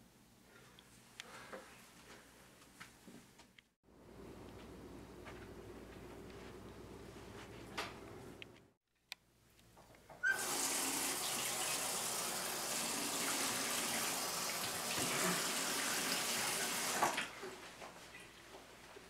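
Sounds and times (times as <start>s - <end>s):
faucet running into basin: 10.2s - 17.3s.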